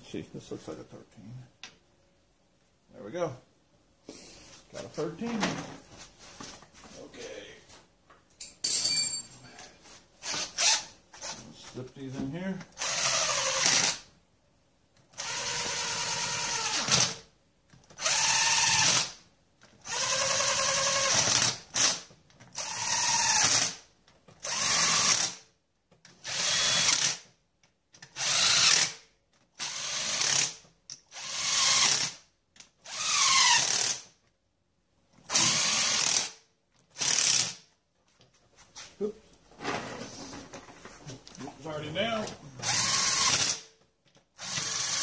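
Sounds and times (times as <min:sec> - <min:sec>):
power drill whining: 0:12.8 - 0:14.0, 0:15.2 - 0:17.2, 0:19.8 - 0:21.6, 0:22.6 - 0:23.8, 0:32.9 - 0:34.0, 0:35.3 - 0:36.3, 0:42.6 - 0:43.6, 0:44.4 - 0:45.0.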